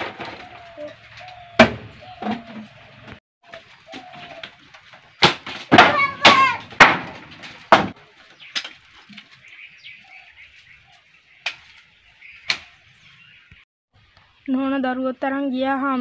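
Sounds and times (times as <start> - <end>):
wooden door banging: 5.2 - 8.0.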